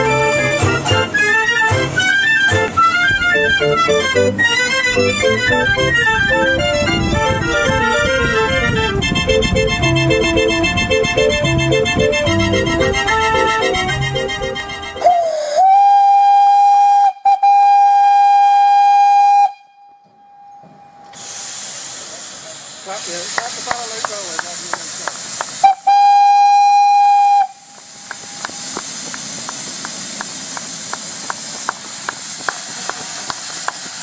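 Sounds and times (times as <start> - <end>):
steam locomotive whistle: 0.0 - 25.0, 25.6 - 29.3
steam hissing: 12.2 - 19.4, 21.1 - 34.0.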